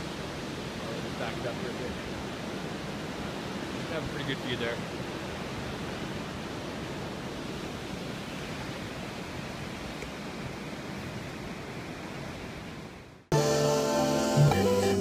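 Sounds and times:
waterfall roaring: 0.0s - 12.8s
guitar music: 13.3s - 15.0s.

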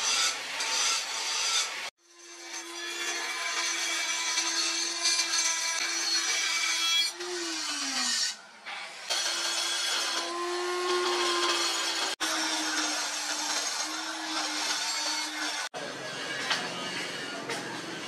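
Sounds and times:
die grinder motor whine: 9.1s - 15.7s
grinding stone on steel: 9.1s - 15.7s.

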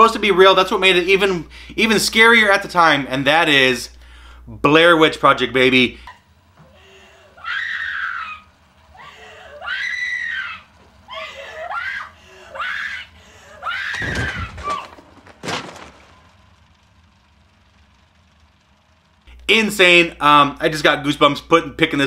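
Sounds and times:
person screaming: 6.7s - 15.0s.

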